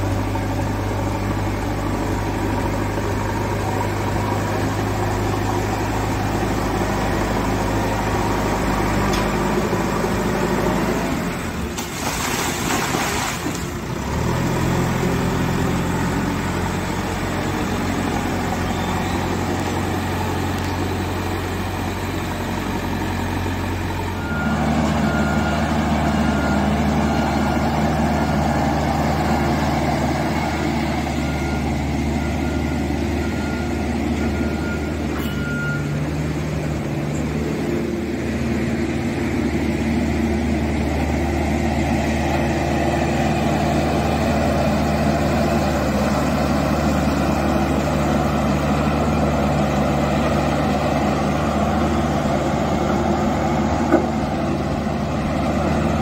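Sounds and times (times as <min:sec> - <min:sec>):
diesel engine running: 0:00.0 - 0:56.0
road roller engine running: 0:00.0 - 0:56.0
short warning beeps: 0:31.3 - 0:36.0.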